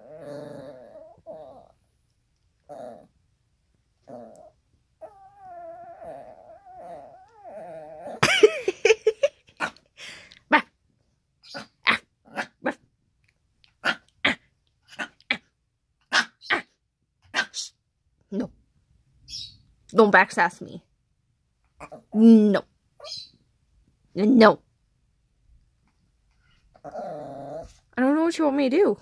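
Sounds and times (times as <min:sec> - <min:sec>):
dog grumbling whine: 0:00.0 - 0:01.8, 0:02.6 - 0:03.1, 0:04.0 - 0:08.2, 0:26.7 - 0:27.8
small dog yapping and barking: 0:11.4 - 0:12.8, 0:16.1 - 0:16.7, 0:17.3 - 0:17.6.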